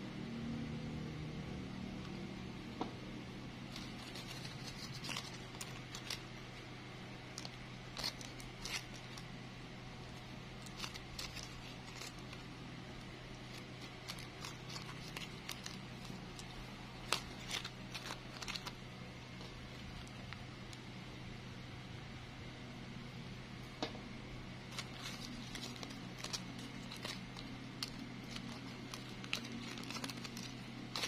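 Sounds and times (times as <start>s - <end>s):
steady low hum: 0.0s - 31.0s
plastic bag crinkling: 3.7s - 6.3s, 7.3s - 9.3s, 10.1s - 20.8s, 24.7s - 31.0s.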